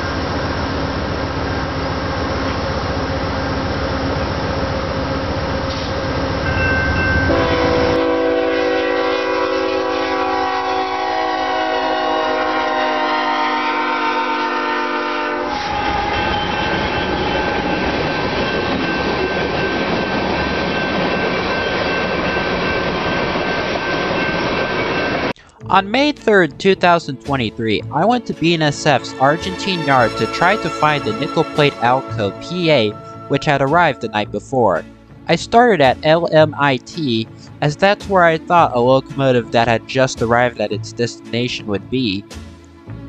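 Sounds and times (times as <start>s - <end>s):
train rumble: 0.0s - 43.0s
locomotive air horn: 7.3s - 16.6s, 29.0s - 33.4s.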